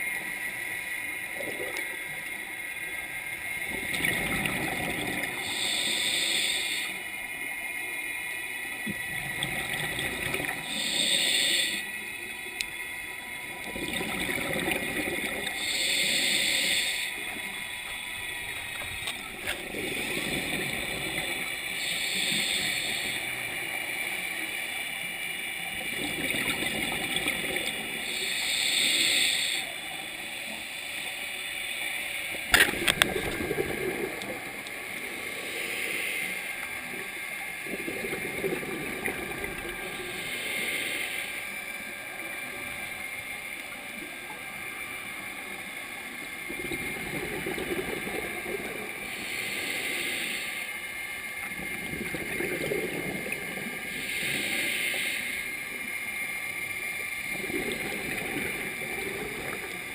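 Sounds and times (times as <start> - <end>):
gurgling exhaled bubbles: 3.6 - 5.8, 8.8 - 11.1, 13.4 - 17.5, 18.3 - 23.5, 25.7 - 28.4, 32.4 - 35.9, 36.7 - 40.6, 46.4 - 49.8, 51.4 - 55.6, 57.1 - 59.9
regulator hissing inhale: 4.8 - 7.3, 10.4 - 12.2, 15.3 - 18.8, 19.6 - 25.3, 27.4 - 45.4, 47.4 - 51.5, 52.4 - 59.9.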